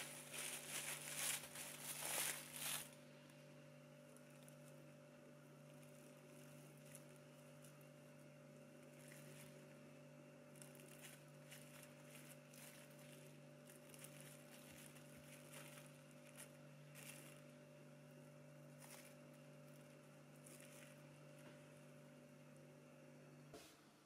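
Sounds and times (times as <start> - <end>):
cling film crinkling: 0.0 - 3.0, 5.6 - 9.8, 10.5 - 17.6, 18.6 - 22.0
steady low hum: 0.0 - 24.0.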